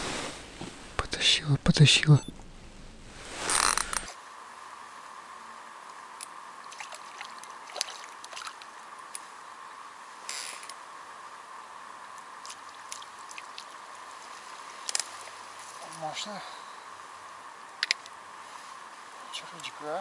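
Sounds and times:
steady high hum: 0:00.0 - 0:20.0
fish splashing at water surface: 0:06.7 - 0:08.8.

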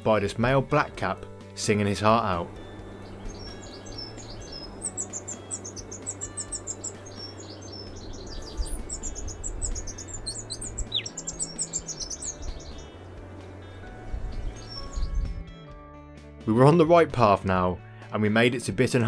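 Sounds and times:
bird song warbling: 0:02.0 - 0:15.4.

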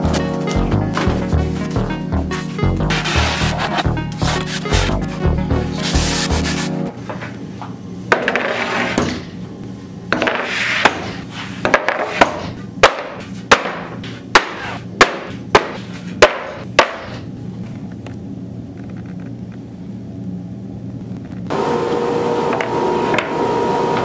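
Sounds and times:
board sliding over board: 0:02.9 - 0:06.7.

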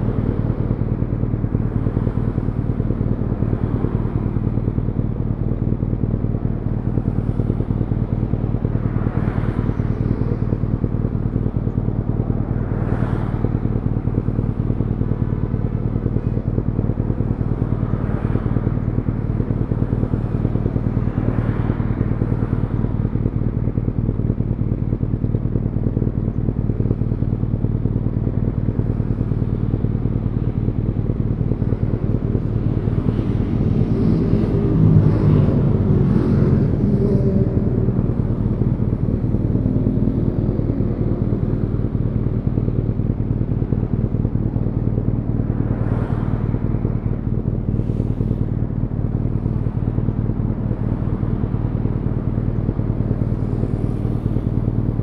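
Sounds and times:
motorcycle engine idling: 0:00.0 - 0:55.0
cars passing: 0:11.0 - 0:14.6, 0:31.4 - 0:43.2, 0:45.3 - 0:52.4.

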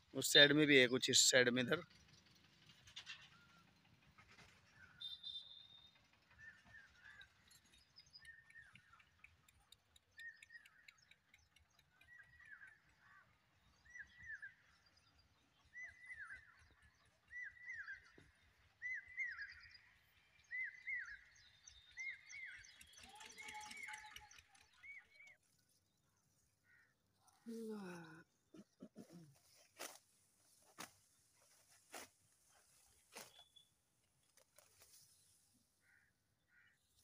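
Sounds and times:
faint bird chirps: 0:04.8 - 0:29.7.

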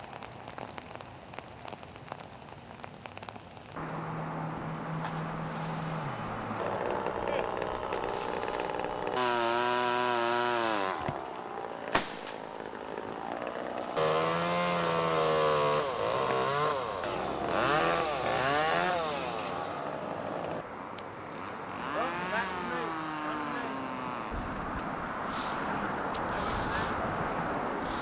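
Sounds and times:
chainsaw cutting: 0:03.8 - 0:20.6, 0:21.4 - 0:24.4.

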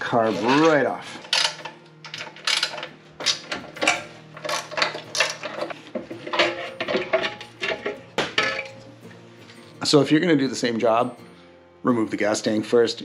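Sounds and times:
metallic clinks and knocks: 0:00.3 - 0:08.9.

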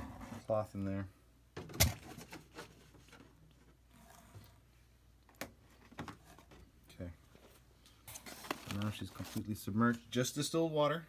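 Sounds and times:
paper and plastic rustling: 0:01.8 - 0:04.4, 0:07.3 - 0:10.0.

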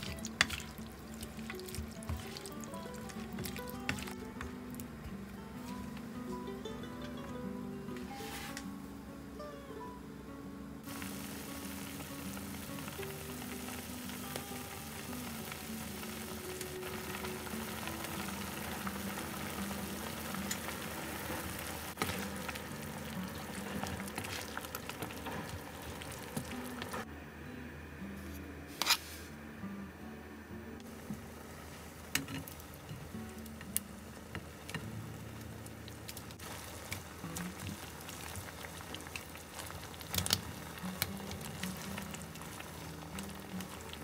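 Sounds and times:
broth bubbling in frying pan: 0:00.0 - 0:04.8, 0:10.8 - 0:27.1, 0:30.9 - 0:44.0
background music: 0:00.0 - 0:28.3.

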